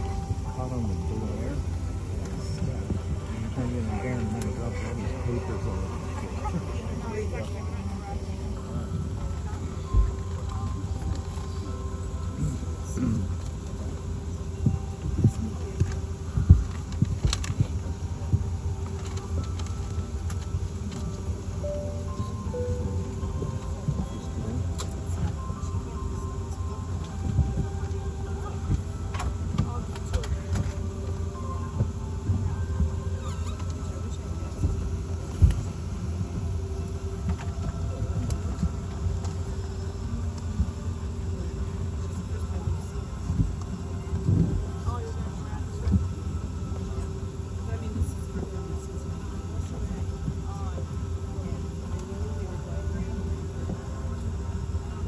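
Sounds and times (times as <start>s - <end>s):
aircraft cabin hum: 0.0s - 55.0s
faint whine: 0.0s - 55.0s
faint held tone: 17.8s - 29.9s.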